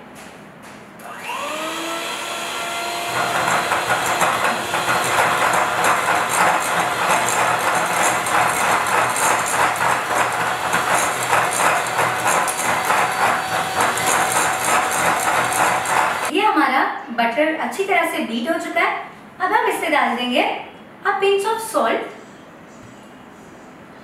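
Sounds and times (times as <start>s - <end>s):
hand mixer motor whine: 1.0s - 16.3s.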